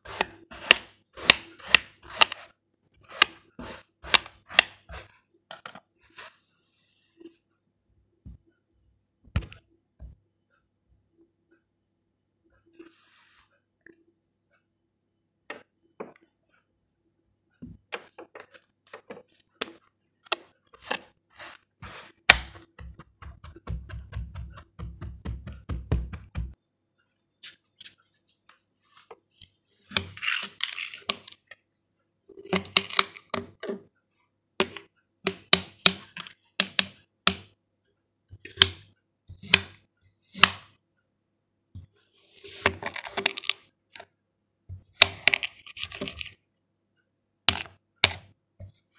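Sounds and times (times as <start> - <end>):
dull thumps: 21.8 - 26.6.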